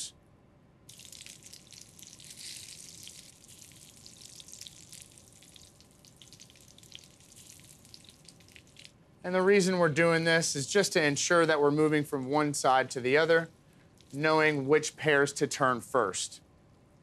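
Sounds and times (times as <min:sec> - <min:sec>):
fruit sizzling in hot oil: 0:00.9 - 0:08.8.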